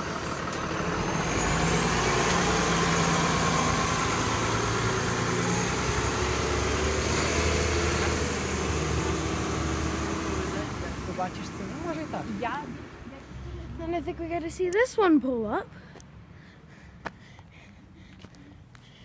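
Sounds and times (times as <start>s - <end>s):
high engine whine: 0.0s - 14.5s
bus engine passing: 0.0s - 19.0s.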